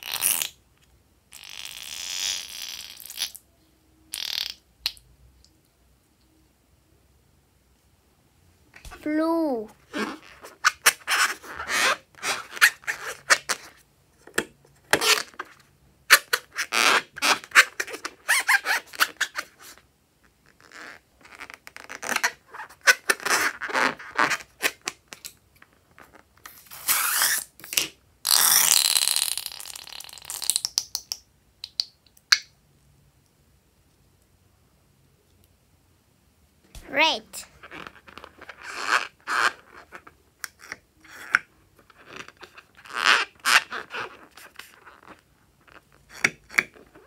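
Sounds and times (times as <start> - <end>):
balloon squeaking and rubbing: 1.3 - 3.4, 9.8 - 13.8, 14.9 - 19.8, 20.5 - 24.8, 26.5 - 27.6, 36.8 - 47.0.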